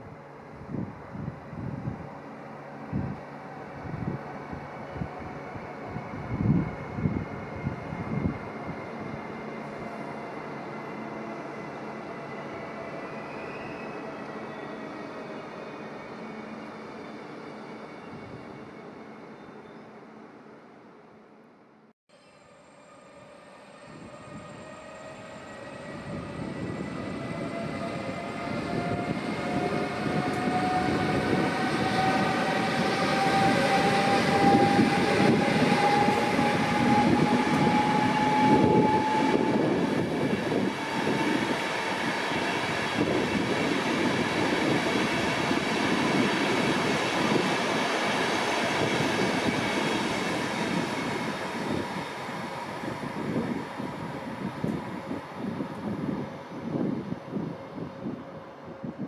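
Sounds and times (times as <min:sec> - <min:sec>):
electric locomotive whine: 0:00.0 - 0:21.4, 0:22.1 - 0:59.0
train wheels rumbling on rails: 0:23.8 - 0:59.0.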